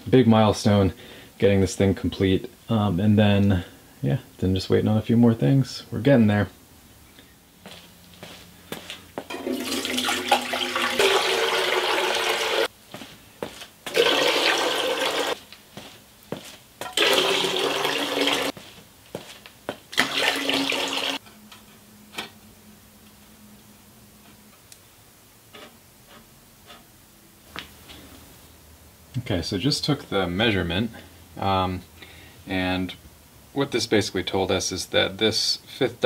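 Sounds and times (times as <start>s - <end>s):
water splashing into steel pan: 9.3s - 12.7s, 16.8s - 18.5s, 20.0s - 21.2s.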